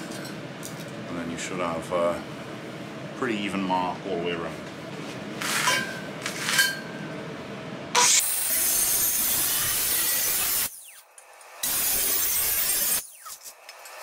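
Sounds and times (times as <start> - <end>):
angle grinder cutting metal: 8.0 - 14.0.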